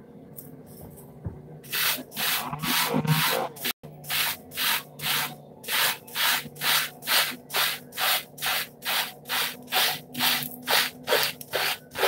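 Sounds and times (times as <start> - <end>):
hair brush scratching through hair: 9.7 - 12.0.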